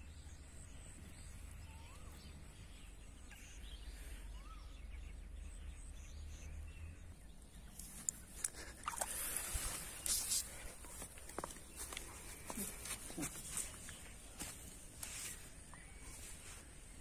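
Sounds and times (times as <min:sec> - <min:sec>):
faint bird chirps: 0:00.2 - 0:08.4, 0:15.2 - 0:17.0.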